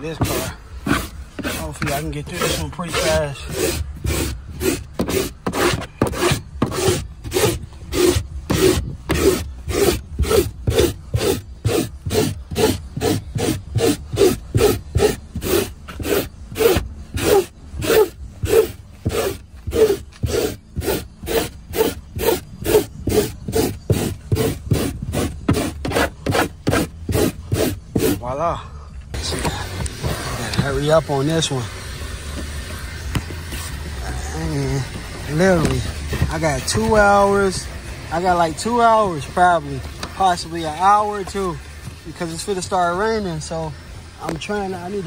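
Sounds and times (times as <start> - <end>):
brush scrubbing car carpet: 0.0 - 28.3, 33.5 - 37.6.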